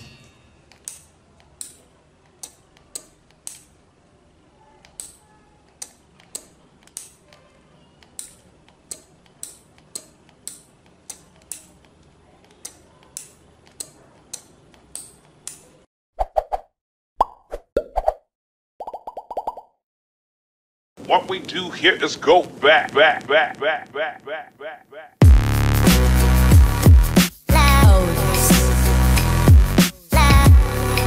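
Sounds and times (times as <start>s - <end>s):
relays clicking: 8.0s - 15.8s.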